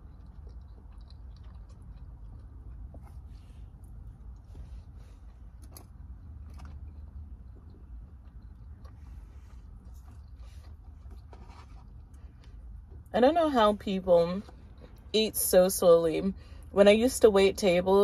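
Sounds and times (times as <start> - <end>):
person chewing food: 0.0 - 13.1
low steady rumble: 0.0 - 18.0.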